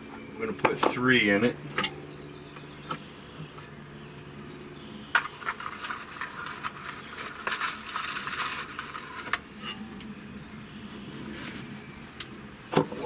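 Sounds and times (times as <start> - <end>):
metal screws clinking: 5.2 - 9.8.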